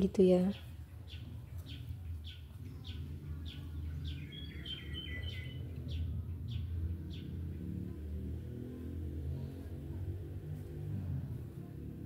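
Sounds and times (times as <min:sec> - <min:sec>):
bird chirping: 0:00.0 - 0:08.1
steady low rumble: 0:00.0 - 0:12.0
bird whistling notes: 0:04.0 - 0:05.6.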